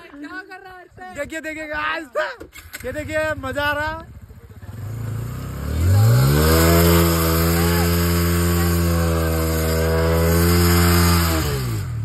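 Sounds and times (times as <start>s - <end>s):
motorcycle engine revving: 2.6s - 12.0s.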